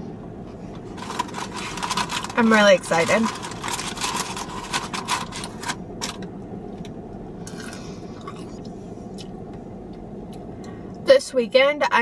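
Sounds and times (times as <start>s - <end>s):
low background hum: 0.0s - 12.0s
paper and cardboard rustling: 0.9s - 5.8s.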